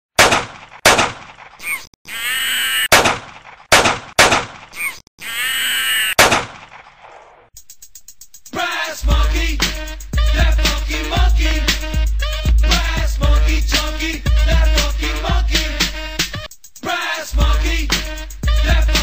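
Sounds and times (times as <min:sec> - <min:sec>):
pistol gunshots: 0:00.2 - 0:01.3, 0:02.9 - 0:04.6, 0:06.2 - 0:06.8
harsh wavering cry: 0:01.6 - 0:02.9, 0:04.8 - 0:06.2.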